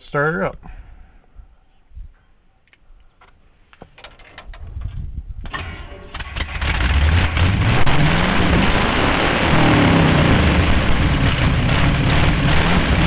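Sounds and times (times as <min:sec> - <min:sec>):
truck engine starting and revving: 0:05.5 - 0:13.0.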